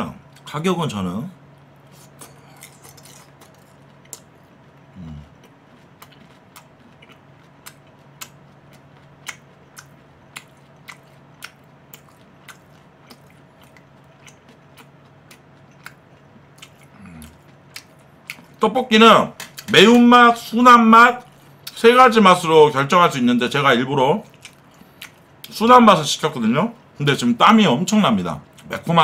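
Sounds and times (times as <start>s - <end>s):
faint steady hum: 0.0s - 29.0s
crisp chewing crunches: 1.9s - 18.6s.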